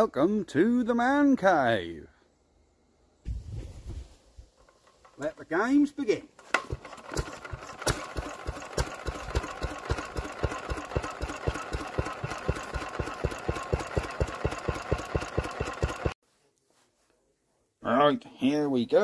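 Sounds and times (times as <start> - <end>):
small stationary engine running: 6.6 - 16.2.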